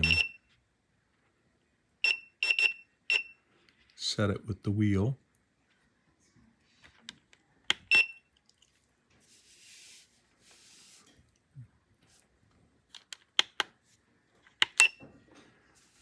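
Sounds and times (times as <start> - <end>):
short beeps: 0.0 - 0.5, 7.9 - 8.3.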